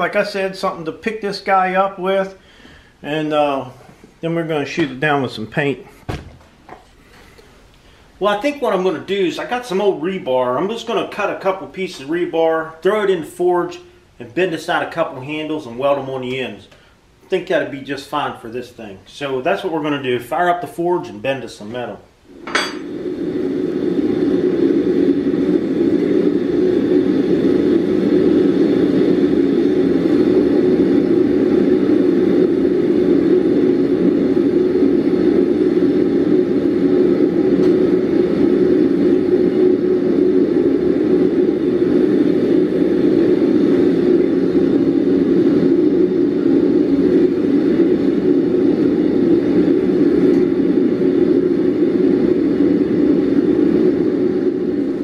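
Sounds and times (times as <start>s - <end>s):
gas burner rushing: 0.0s - 55.0s.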